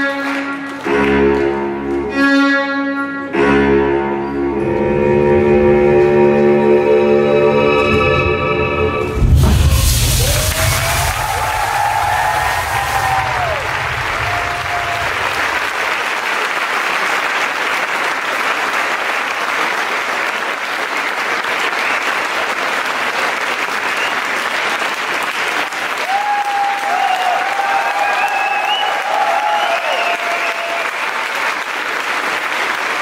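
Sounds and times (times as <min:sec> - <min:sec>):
audience applauding and cheering: 0:00.0 - 0:02.1, 0:09.1 - 0:33.0
music: 0:00.0 - 0:11.1
gas jets blasting hiss: 0:09.2 - 0:15.2
whoops: 0:10.1 - 0:15.6, 0:26.0 - 0:31.1.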